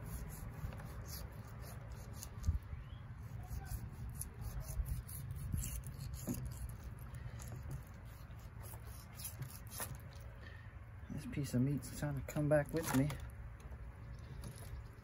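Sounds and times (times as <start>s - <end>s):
knife cutting fish: 3.2s - 10.0s.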